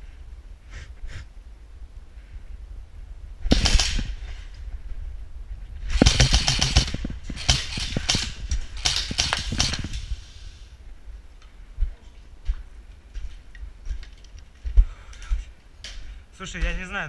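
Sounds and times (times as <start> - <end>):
airsoft rifle bursts: 3.5 - 4.2, 6.0 - 10.5.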